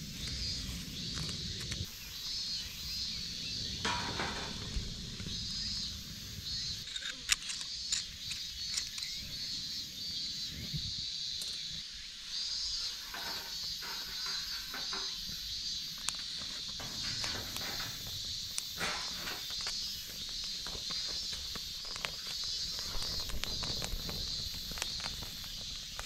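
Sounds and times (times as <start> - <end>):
insects chirping in pulses: 0.0 - 26.0
twigs clicking and rustling: 17.2 - 26.0.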